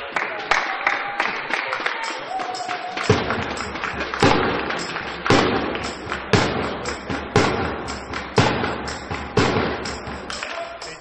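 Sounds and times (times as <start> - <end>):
drum thumps in a hall: 2.5 - 11.0.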